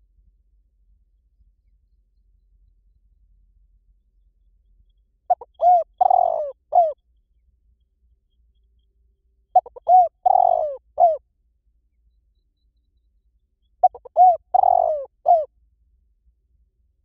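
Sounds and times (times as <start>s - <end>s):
dove cooing: 5.3s - 7.0s, 9.6s - 11.2s, 13.8s - 15.5s.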